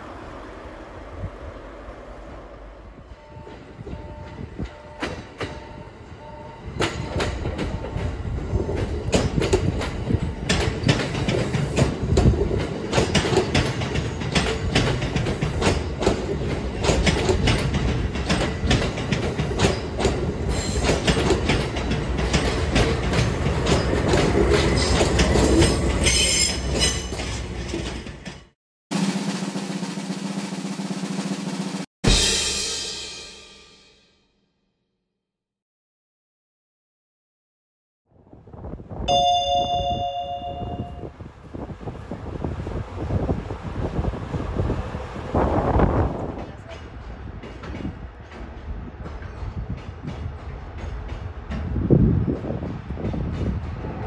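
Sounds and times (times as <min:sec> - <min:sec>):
train low rumble: 0:00.0 - 0:28.4, 0:38.2 - 0:54.0
train wheels clicking over rail joints: 0:06.7 - 0:28.5, 0:45.9 - 0:54.0.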